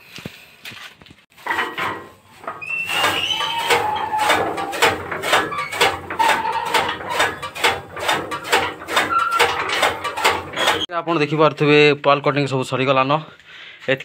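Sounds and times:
short squeaks: 0:01.4 - 0:10.9.

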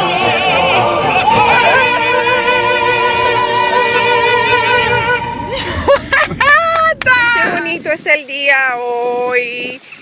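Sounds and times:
operatic singing with vibrato: 0:00.0 - 0:07.9.

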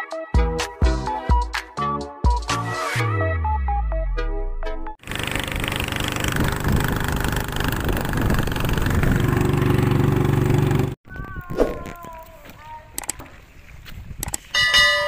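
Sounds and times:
boat engine running: 0:05.0 - 0:11.0.

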